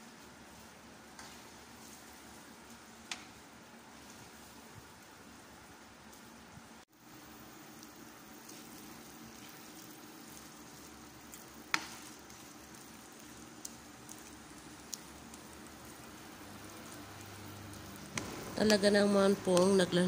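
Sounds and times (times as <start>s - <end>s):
rice sizzling in a metal pan: 0.0s - 20.0s.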